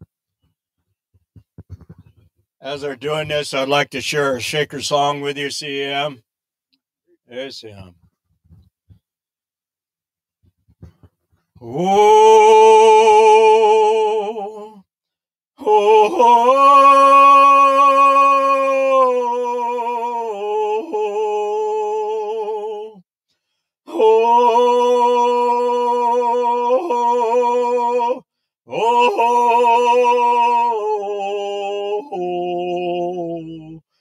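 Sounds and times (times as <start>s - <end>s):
person singing unaccompanied: 11.6s - 14.8s, 15.6s - 23.0s, 23.9s - 33.8s.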